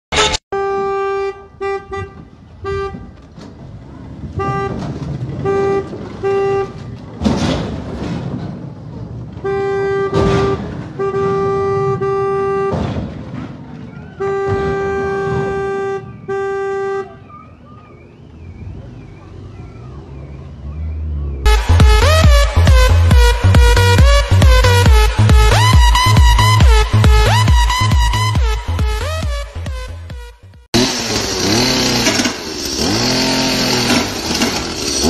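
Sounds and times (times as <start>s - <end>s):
car horn honking: 0.1s - 3.4s, 4.3s - 7.0s, 9.4s - 13.1s, 13.8s - 19.5s, 21.4s - 32.3s
loud bangs: 3.2s - 16.8s.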